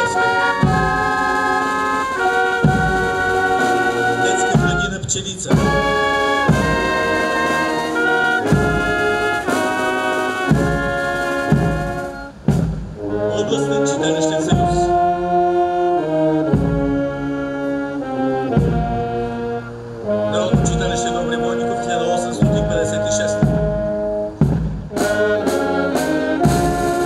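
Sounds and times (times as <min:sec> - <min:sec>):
brass band playing a march: 0:00.0 - 0:27.0
drum and cymbal stroke: 0:02.6 - 0:13.0, 0:24.3 - 0:27.0.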